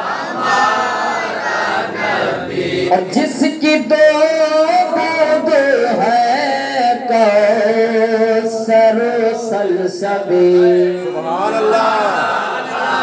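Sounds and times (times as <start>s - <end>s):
man singing unaccompanied: 2.8s - 12.2s.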